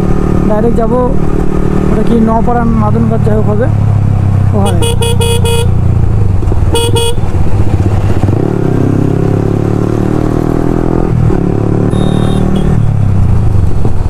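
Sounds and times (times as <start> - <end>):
motorcycle engine running: 0.0 - 14.0
vehicle horn honk: 4.6 - 5.7, 6.7 - 7.2, 11.9 - 12.9.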